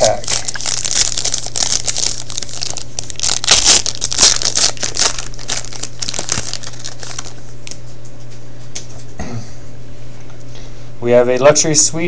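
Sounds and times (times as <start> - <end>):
foil pack tearing: 0.0 - 7.8
wrapper crinkling: 0.0 - 7.9.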